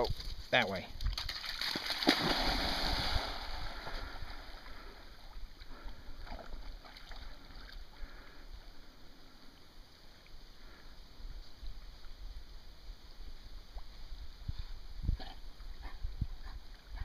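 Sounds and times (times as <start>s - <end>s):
dog splashing into water: 1.1s - 4.6s
wind rumble on microphone: 11.5s - 17.0s.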